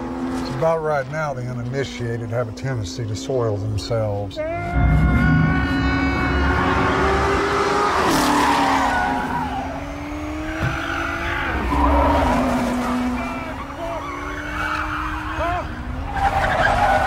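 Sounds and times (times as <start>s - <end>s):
race car engine: 0.0s - 17.0s
tyres squealing: 4.4s - 17.0s.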